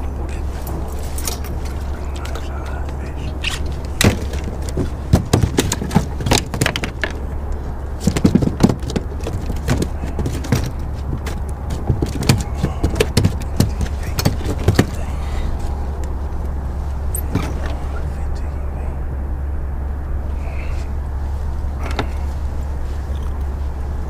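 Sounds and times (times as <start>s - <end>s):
steady low hum: 0.0s - 24.0s
fishing gear clicks and knocks: 0.6s - 17.8s.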